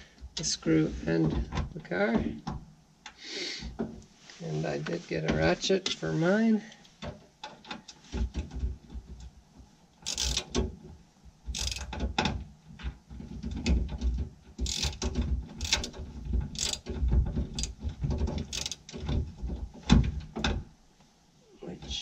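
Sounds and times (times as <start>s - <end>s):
hand ratchet clicking: 10.0s - 10.6s, 11.5s - 12.0s, 14.6s - 16.9s, 17.5s - 17.8s, 18.4s - 19.0s.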